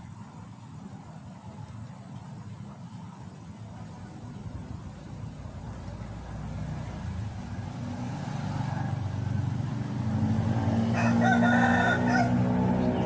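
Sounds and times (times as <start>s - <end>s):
steady low hum: 0.0s - 13.0s
rooster crowing: 10.8s - 13.0s.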